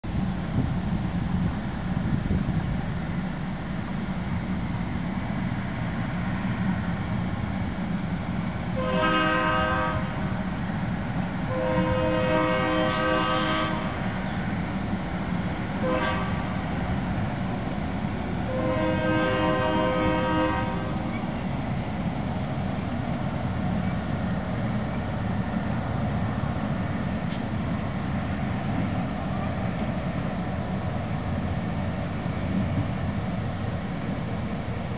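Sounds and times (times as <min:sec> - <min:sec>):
train rumbling: 0:00.0 - 0:34.9
train air horn blasts: 0:08.8 - 0:10.4, 0:11.5 - 0:14.1, 0:15.8 - 0:16.7, 0:18.5 - 0:21.2.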